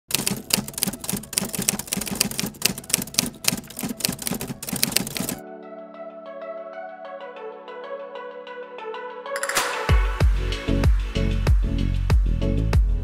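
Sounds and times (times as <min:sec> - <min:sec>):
typewriter keys clacking: 0:00.1 - 0:05.4
soft electronic melody: 0:00.1 - 0:11.6.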